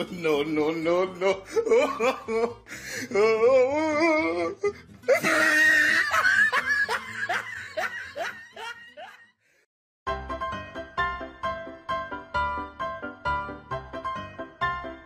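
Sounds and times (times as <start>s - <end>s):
background piano music: 0.0s - 9.1s, 10.1s - 15.0s
person laughing hard: 1.1s - 9.4s.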